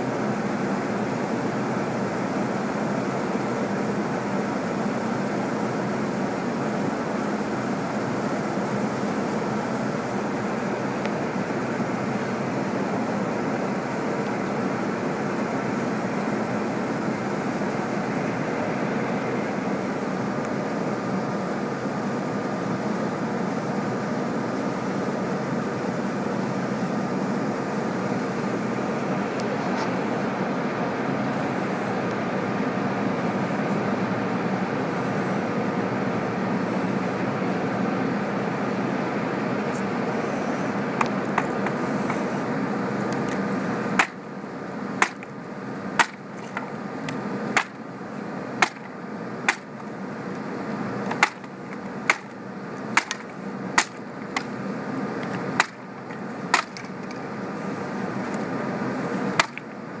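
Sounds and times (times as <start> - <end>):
wooden pallet boards cracking: 51.1 - 51.5.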